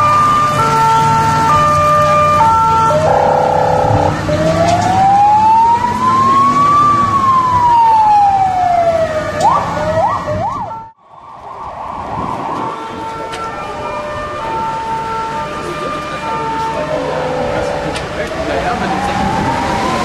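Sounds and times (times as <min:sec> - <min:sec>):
electronic siren wailing and yelping: 0:02.3 - 0:10.9, 0:16.2 - 0:20.0
steady rushing noise: 0:11.0 - 0:14.6.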